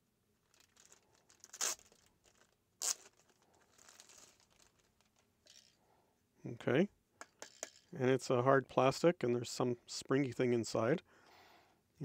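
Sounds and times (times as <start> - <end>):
plastic bag crinkling: 0.4 - 5.8.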